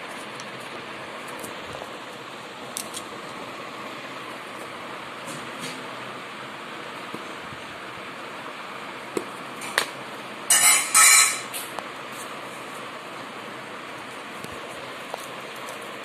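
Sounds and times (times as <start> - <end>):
scissors cutting paper: 2.7 - 3.1.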